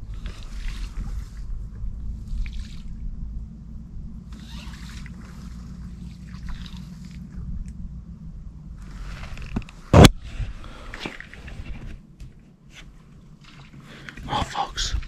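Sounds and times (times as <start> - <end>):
steady low rumble: 0.0 - 15.0
water sloshing and trickling: 0.0 - 15.0
rustling: 8.8 - 14.2.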